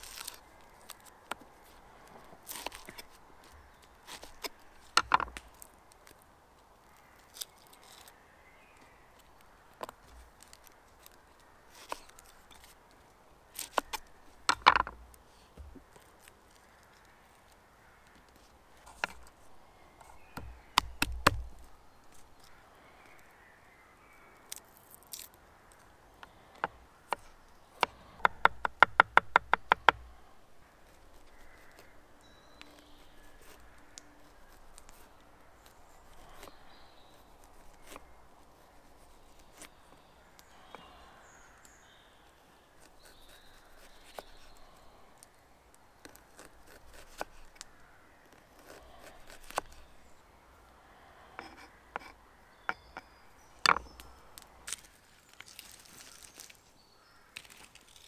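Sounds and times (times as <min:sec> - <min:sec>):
knife chopping on wooden board: 0:20.4 - 0:21.5.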